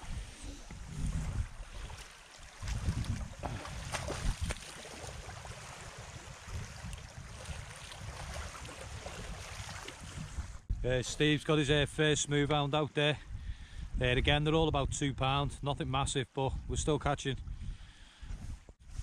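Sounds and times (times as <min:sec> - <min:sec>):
small waves lapping: 0:00.0 - 0:10.7
splashing in shallow water: 0:00.0 - 0:10.7
wind buffeting microphone: 0:00.0 - 0:11.1, 0:13.2 - 0:15.6, 0:16.5 - 0:19.0.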